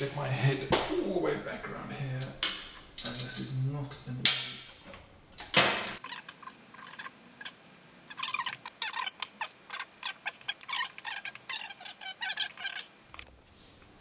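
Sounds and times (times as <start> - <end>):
fast-forwarded squeaky chatter: 6.0 - 12.9.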